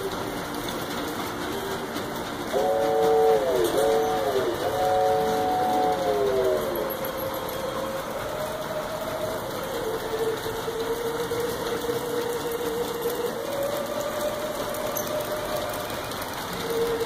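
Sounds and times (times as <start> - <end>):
wheels rumbling on rail: 0.0 - 17.0.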